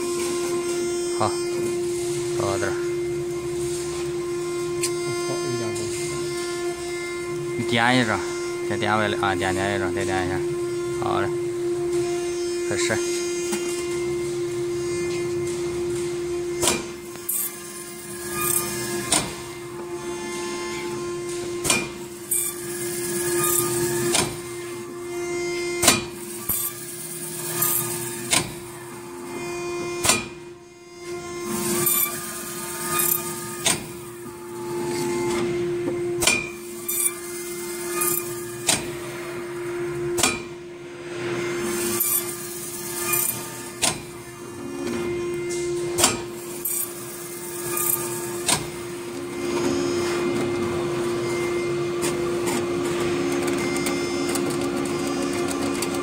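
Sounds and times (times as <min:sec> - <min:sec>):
motor hum: 0:00.0 - 0:56.0
sharp machine clicks: 0:42.0 - 0:44.0.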